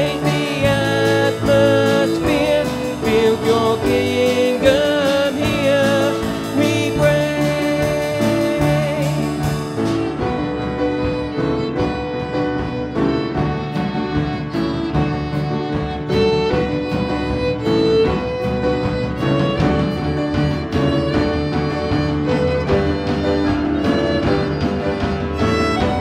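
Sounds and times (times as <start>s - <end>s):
voices singing: 0.0s - 9.6s
band playing worship music: 0.0s - 26.0s.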